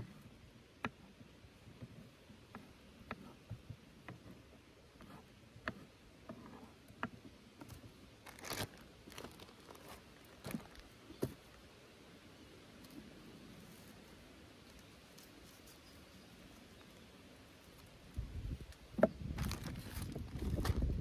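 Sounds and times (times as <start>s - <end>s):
crinkling rustle: 7.6s - 11.6s, 12.8s - 21.0s.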